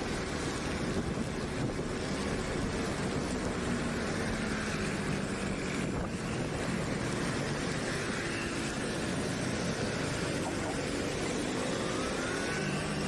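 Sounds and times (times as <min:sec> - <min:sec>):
road noise: 0:00.0 - 0:13.0
scooter engine hum: 0:00.0 - 0:13.0
wind on microphone: 0:00.5 - 0:03.6.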